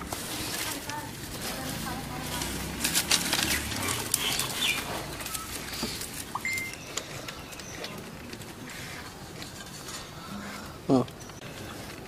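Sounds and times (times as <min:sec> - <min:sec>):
dry sticks rustling and clicking: 0:00.0 - 0:12.0
bird chirp: 0:03.5 - 0:08.2.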